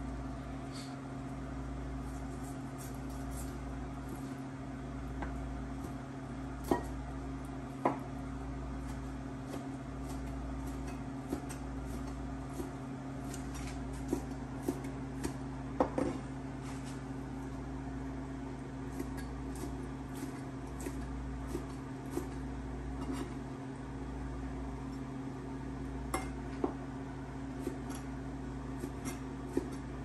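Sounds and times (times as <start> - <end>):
low appliance hum: 0.0 - 30.0.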